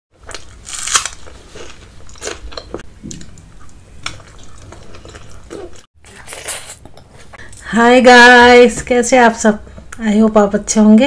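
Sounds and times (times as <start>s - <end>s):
chewing crunches: 0.2s - 6.7s.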